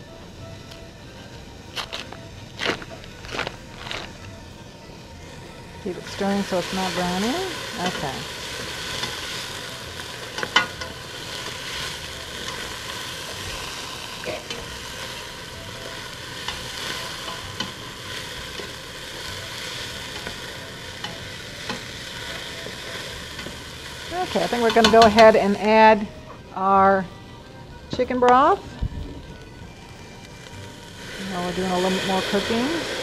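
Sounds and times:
vegetables sizzling in oil: 5.1 - 26.8, 29.8 - 33.0.

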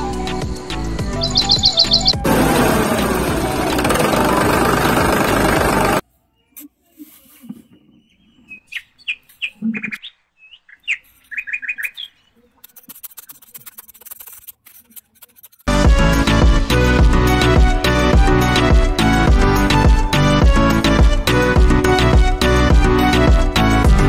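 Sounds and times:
background music: 0.0 - 6.0, 15.7 - 24.0
birds chirping: 1.0 - 2.2, 7.4 - 12.7
hand trowel scraping sand: 12.6 - 15.7.

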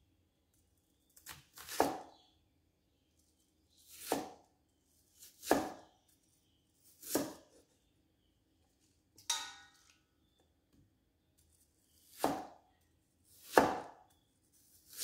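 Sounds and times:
cleaver chopping on wooden board: 12.2 - 12.5, 13.5 - 14.0.

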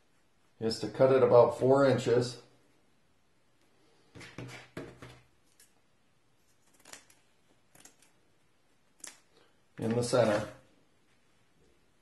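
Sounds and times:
tape rustling: 6.4 - 8.2.

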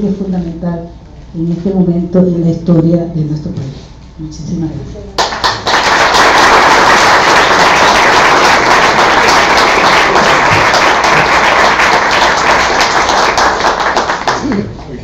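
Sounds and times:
audience applauding: 5.2 - 14.8.

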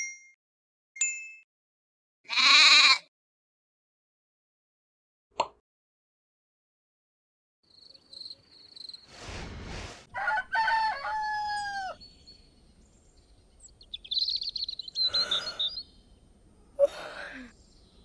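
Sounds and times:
small birds twittering: 7.7 - 9.1, 11.5 - 18.0
brief rushing sound: 9.1 - 10.1
rooster crowing: 10.1 - 12.0.

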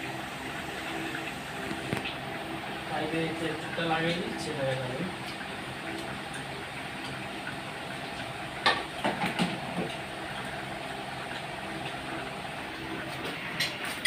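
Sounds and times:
steady mechanical hum: 0.0 - 14.0.

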